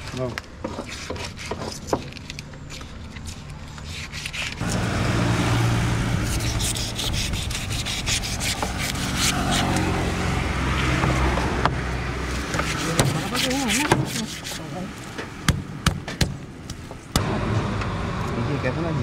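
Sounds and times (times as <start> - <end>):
knife scraping fish on board: 0.7 - 2.2, 6.3 - 10.0, 12.3 - 14.8
vehicle engine humming: 2.2 - 19.0.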